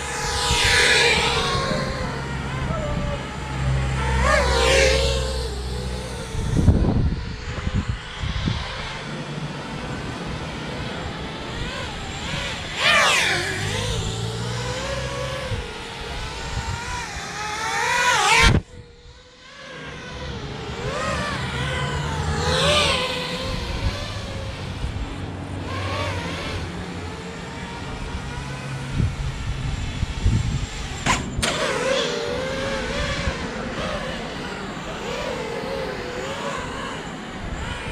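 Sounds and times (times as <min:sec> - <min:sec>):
quadcopter motors whining: 0:00.0 - 0:37.9.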